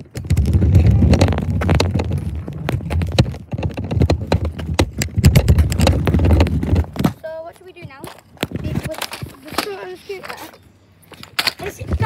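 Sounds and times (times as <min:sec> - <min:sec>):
clicks and knocks: 0:00.0 - 0:07.2
kick scooter rolling over pavement: 0:00.0 - 0:12.0.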